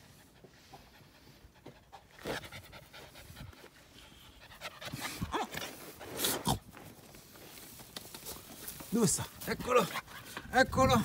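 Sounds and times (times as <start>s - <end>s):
puppy panting: 0.0s - 6.2s, 9.6s - 10.6s.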